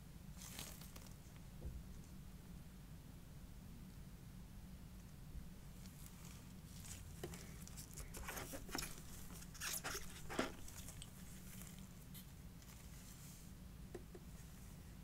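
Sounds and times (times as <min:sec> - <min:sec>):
packaging rustling: 0:05.9 - 0:12.0.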